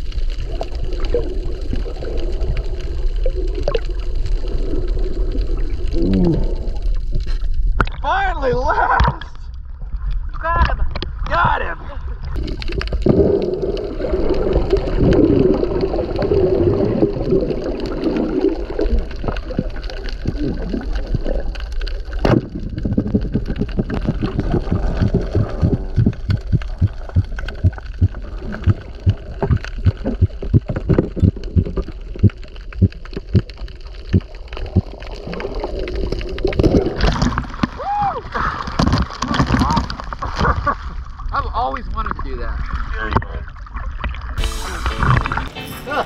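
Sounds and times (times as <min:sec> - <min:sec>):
water sloshing and gurgling: 0:00.0 - 0:45.6
low dull thumps: 0:24.1 - 0:33.5.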